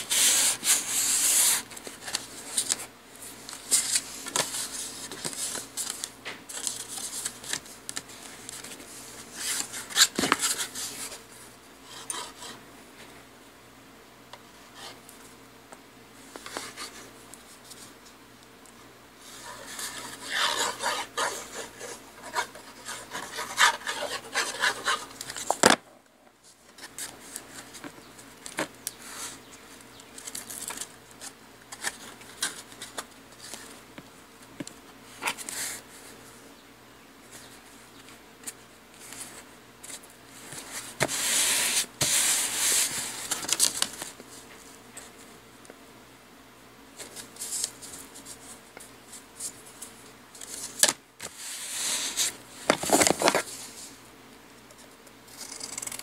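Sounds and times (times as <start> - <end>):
paper rubbing on paper: 19.4 - 25.2.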